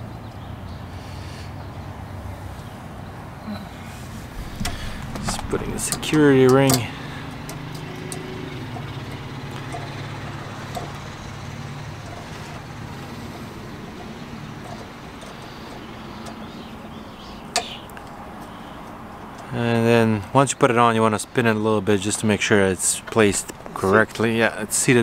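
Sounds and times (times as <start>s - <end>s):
low engine hum: 0.0s - 20.4s
small metal clicks: 4.4s - 19.5s.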